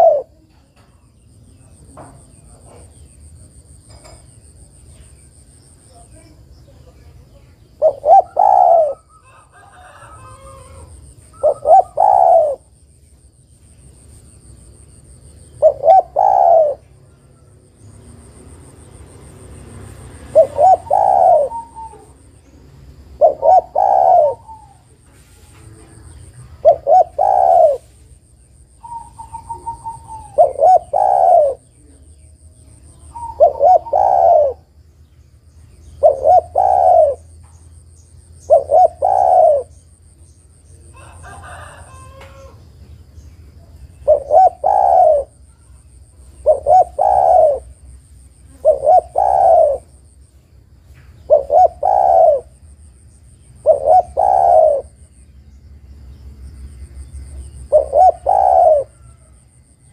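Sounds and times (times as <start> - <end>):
dove cooing: 0.0 - 0.6, 7.7 - 12.8, 15.5 - 17.5, 19.6 - 32.2, 32.8 - 34.8, 35.8 - 37.4, 38.4 - 39.9, 40.8 - 42.6, 43.9 - 50.1, 51.2 - 52.7, 53.5 - 55.1, 57.4 - 59.9.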